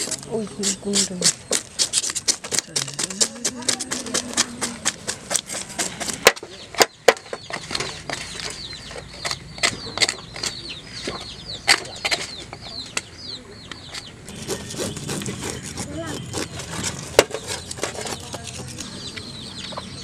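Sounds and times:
bird chirping: 0:00.0 - 0:20.0
spoon scraping fish scales: 0:14.3 - 0:18.8.

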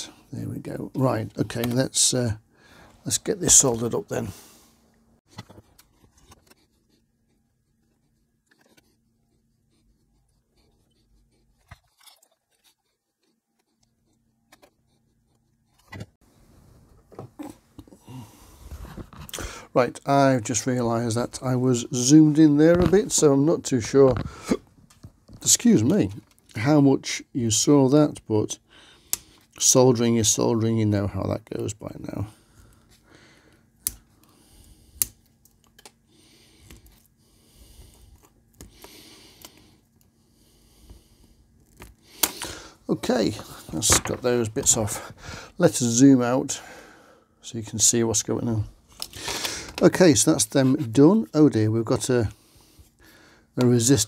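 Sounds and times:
rustling handling noise: 0:41.5 - 0:45.7.

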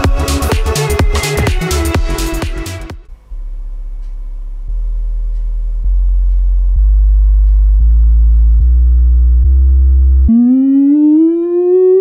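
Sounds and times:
low stepped test tones: 0:03.1 - 0:12.0.

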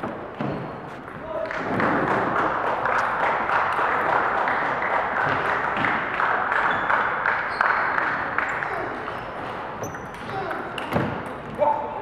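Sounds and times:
spectators applauding: 0:01.5 - 0:09.1.

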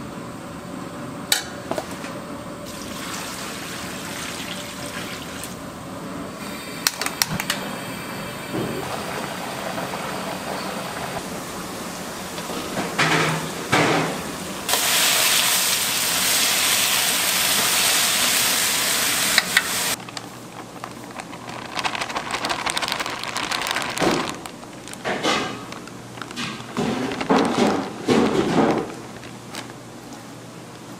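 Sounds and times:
pot boiling and bubbling: 0:06.4 - 0:12.6, 0:14.7 - 0:30.9
stir-frying sizzle in wok: 0:14.7 - 0:20.0.

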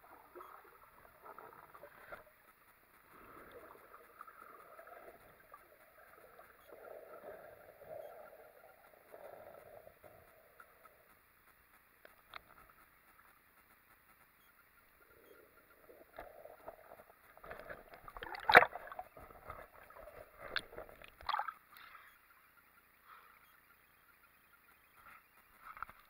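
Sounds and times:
water sloshing and splashing: 0:16.2 - 0:21.8.

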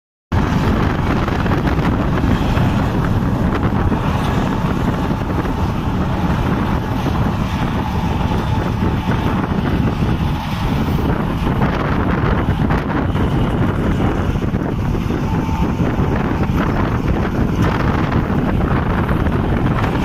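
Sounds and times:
tractor and reaper running: 0:00.3 - 0:20.0
wind noise on microphone: 0:00.3 - 0:20.0.

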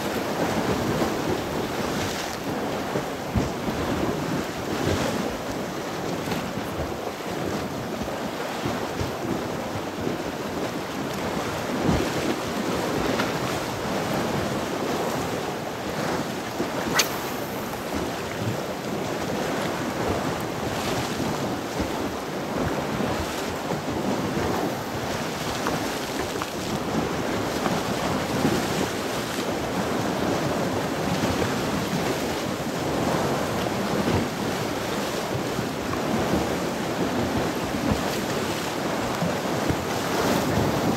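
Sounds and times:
waves washing against shore: 0:00.0 - 0:40.9
wind buffeting microphone: 0:00.0 - 0:40.9
sharp click: 0:16.9 - 0:17.8.

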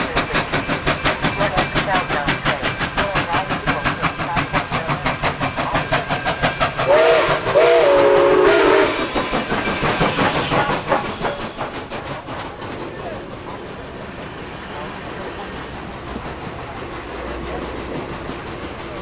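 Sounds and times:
steam locomotive running: 0:00.0 - 0:19.0
steam whistle: 0:06.8 - 0:09.4.

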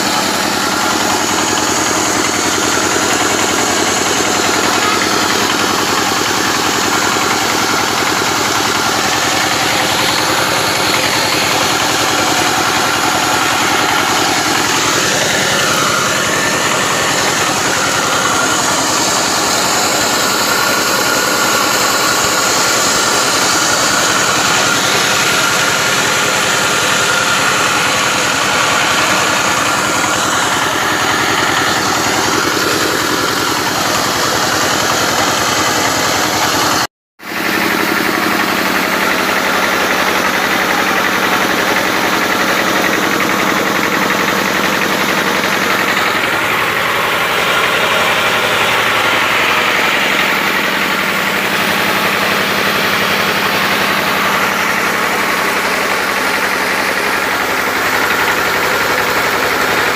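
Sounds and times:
machine motor running: 0:00.0 - 0:59.9.

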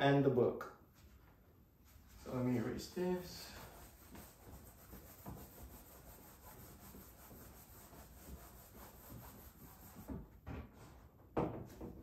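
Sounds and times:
eraser rubbing on whiteboard: 0:01.9 - 0:10.2.

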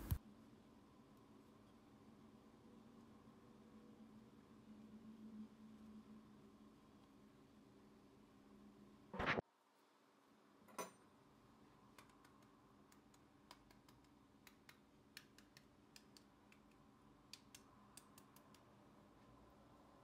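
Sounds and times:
pastry layers crackling: 0:00.0 - 0:00.2.

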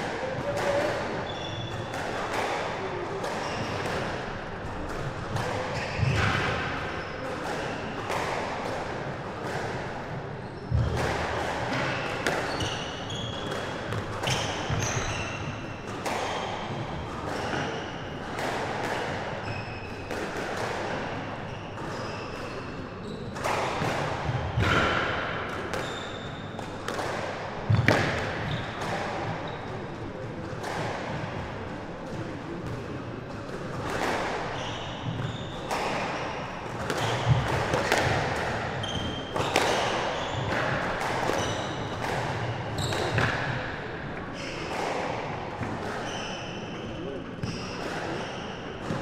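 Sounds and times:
shoes squeaking on court floor: 0:00.8 - 0:02.2, 0:03.4 - 0:03.9, 0:05.5 - 0:08.0, 0:10.4 - 0:11.0, 0:11.7 - 0:16.8, 0:19.4 - 0:20.1, 0:21.4 - 0:23.6, 0:25.8 - 0:26.6, 0:27.7 - 0:29.9, 0:34.5 - 0:44.8, 0:45.6 - 0:48.8
squash ball cracks off rackets and walls: 0:33.5 - 0:43.7.

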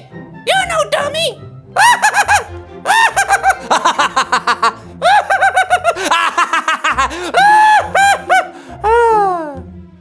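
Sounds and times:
man laughing high-pitched: 0:01.8 - 0:09.6.

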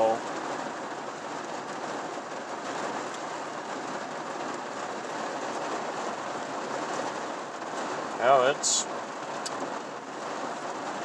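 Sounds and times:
heavy rain on vehicle roof: 0:00.0 - 0:11.0.

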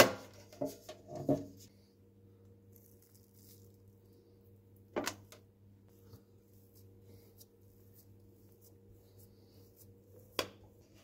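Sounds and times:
low steady hum: 0:00.1 - 0:11.0
dough handling and pressing: 0:02.6 - 0:11.0.

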